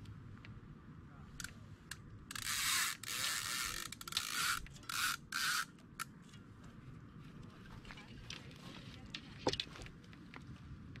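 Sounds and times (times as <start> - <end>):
reel ratchet buzzing: 2.3 - 5.7.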